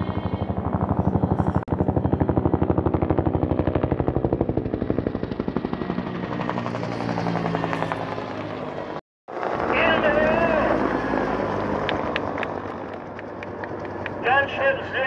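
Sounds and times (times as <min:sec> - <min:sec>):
helicopter engine: 0:00.0 - 0:15.0
helicopter rotor blade slap: 0:10.7 - 0:14.6.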